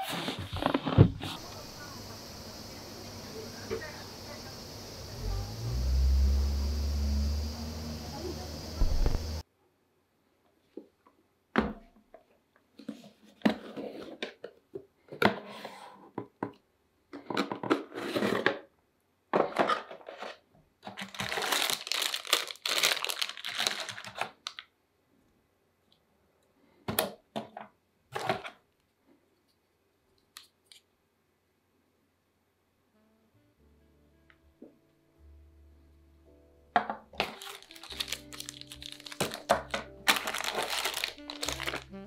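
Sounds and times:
plastic wrapping crinkling: 20.8s - 24.6s, 37.1s - 42.0s.

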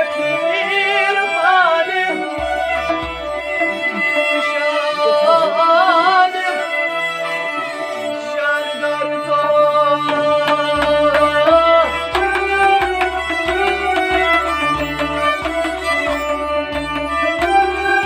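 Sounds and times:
harmonium melody: 0.0s - 18.0s
plucked long-necked lute: 2.3s - 6.4s, 9.3s - 18.0s.

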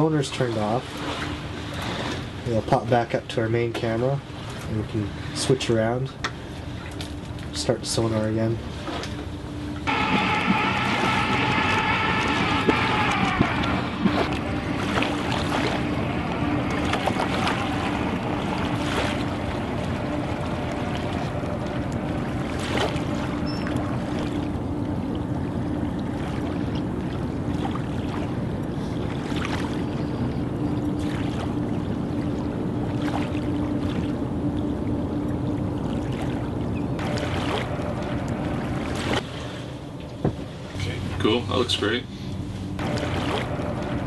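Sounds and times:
low hum: 0.0s - 44.0s
water wash: 0.0s - 44.0s
wind: 0.0s - 44.0s
electric motor whine: 9.9s - 22.6s.

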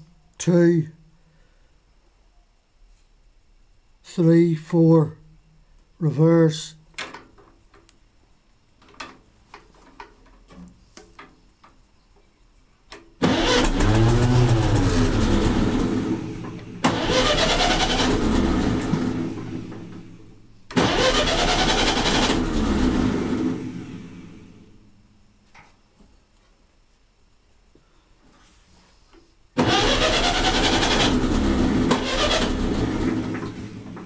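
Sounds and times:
starter motor cranking engine: 13.2s - 24.6s, 29.6s - 34.0s.

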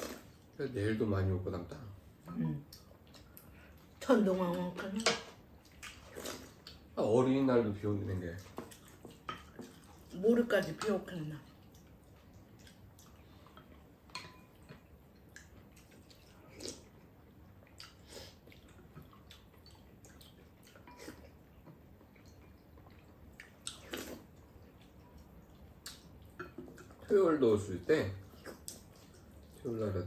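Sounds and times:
mouth sounds of eating: 0.0s - 0.6s, 5.7s - 7.0s, 14.7s - 27.1s, 28.2s - 30.0s
low background hiss: 0.0s - 30.0s
chopsticks clicking on bowls: 14.1s - 14.6s.

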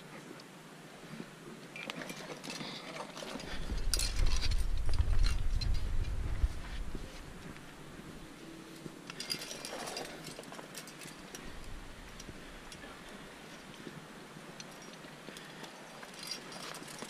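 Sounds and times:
climbing gear clinking on rock: 1.7s - 7.6s, 8.7s - 17.0s
heavy low microphone rumble: 3.5s - 8.6s, 11.4s - 13.2s.

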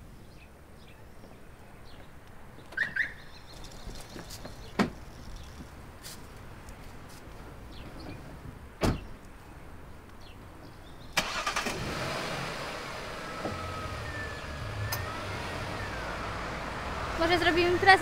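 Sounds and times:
car door shutting: 8.8s - 9.2s, 13.3s - 14.0s
car engine starting and running: 11.1s - 18.0s.

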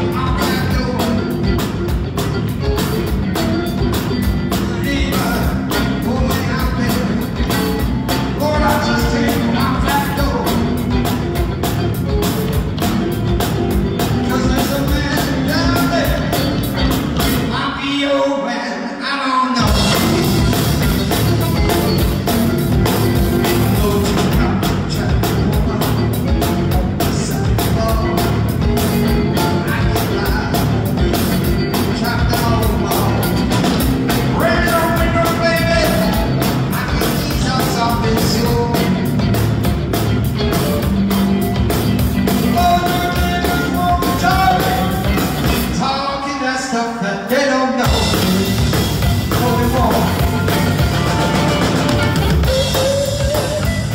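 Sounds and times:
drum kit: 0.0s - 18.0s, 19.5s - 46.2s, 47.2s - 53.9s
bass guitar: 0.0s - 18.2s, 19.5s - 46.7s, 47.3s - 53.9s
electric guitar: 0.0s - 53.9s.

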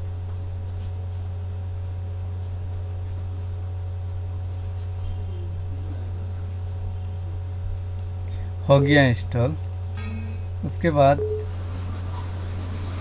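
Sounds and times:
steady low hum: 0.0s - 13.0s
faint higher tones: 10.0s - 11.6s.

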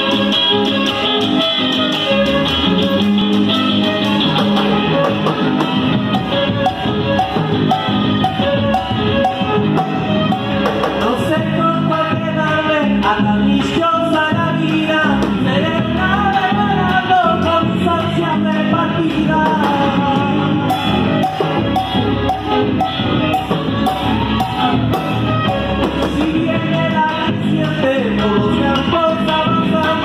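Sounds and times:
steady percussion beat: 0.0s - 30.0s
person singing folk song: 10.9s - 21.4s, 24.1s - 30.0s.

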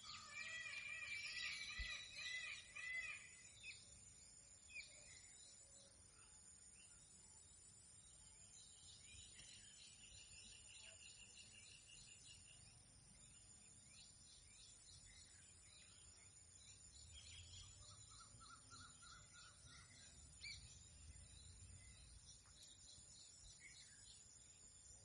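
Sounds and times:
bird whistling steady note: 0.0s - 3.4s
small birds chirping: 0.0s - 25.0s.

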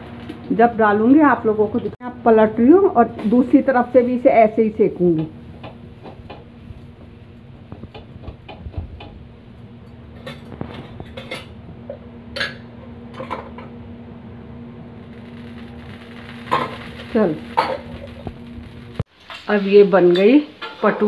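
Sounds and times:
low hum: 9.2s - 19.1s.

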